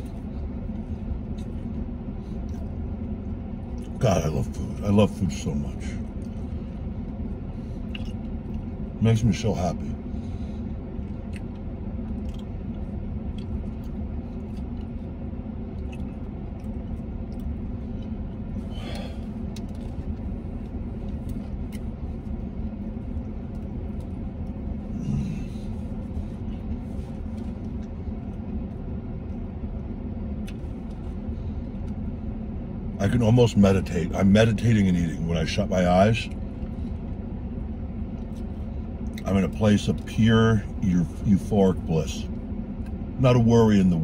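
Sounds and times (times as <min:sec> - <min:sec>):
person chewing: 0:00.0 - 0:04.0, 0:06.0 - 0:08.8, 0:10.6 - 0:28.8
engine idling: 0:00.0 - 0:44.0.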